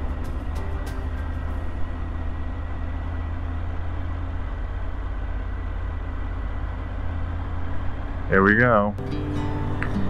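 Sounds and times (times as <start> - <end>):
motorcycle engine droning: 0.0 - 10.0.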